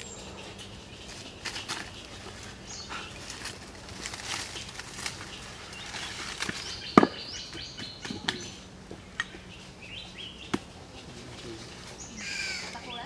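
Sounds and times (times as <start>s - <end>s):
footsteps in dry leaves: 0.0s - 7.4s
birds chirping: 0.0s - 13.0s.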